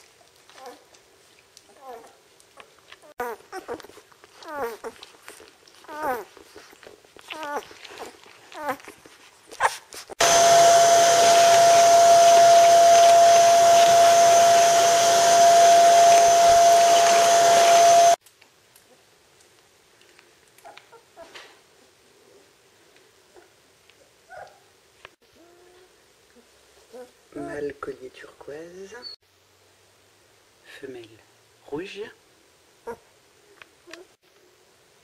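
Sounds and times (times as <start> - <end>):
puppies whimpering and squeaking: 3.0 - 18.2, 28.9 - 29.2
vacuum cleaner whining: 10.2 - 18.2.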